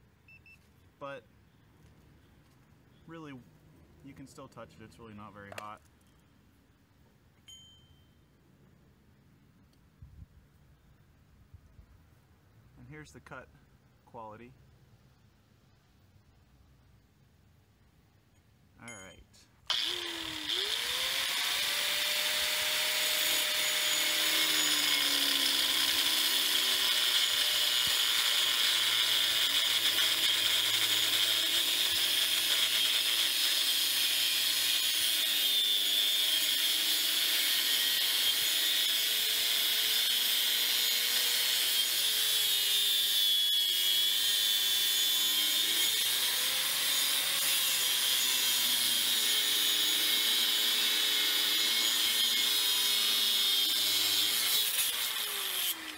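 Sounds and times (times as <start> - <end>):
angle grinder cutting steel: 19.7 - 55.9.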